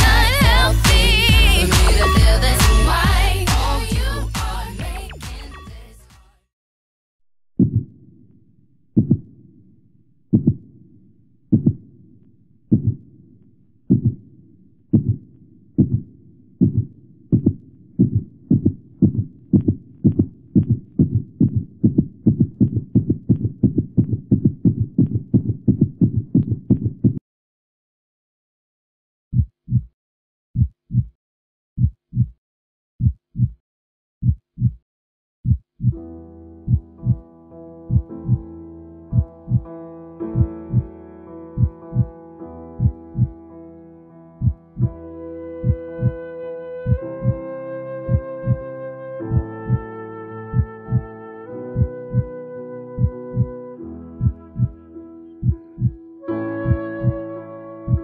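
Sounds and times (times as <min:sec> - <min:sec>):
heartbeat: 0:00.0 - 0:05.2, 0:07.6 - 0:08.0, 0:09.0 - 0:09.3, 0:10.3 - 0:10.7, 0:11.5 - 0:11.8, 0:12.7 - 0:13.0, 0:13.9 - 0:14.2, 0:14.9 - 0:27.2, 0:29.4 - 0:29.9, 0:30.6 - 0:31.2, 0:31.8 - 0:32.4, 0:33.0 - 0:33.6, 0:34.2 - 0:34.8, 0:35.4 - 0:36.0, 0:36.7 - 0:37.2, 0:37.9 - 0:38.5, 0:39.1 - 0:39.7, 0:40.4 - 0:40.9, 0:41.6 - 0:42.1, 0:42.8 - 0:43.4, 0:44.4 - 0:45.0, 0:45.6 - 0:46.2, 0:46.8 - 0:47.4, 0:48.1 - 0:48.6, 0:49.3 - 0:49.8, 0:50.5 - 0:51.1, 0:51.8 - 0:52.3, 0:53.0 - 0:53.5, 0:54.2 - 0:54.8, 0:55.4 - 0:56.0, 0:56.6 - 0:57.2.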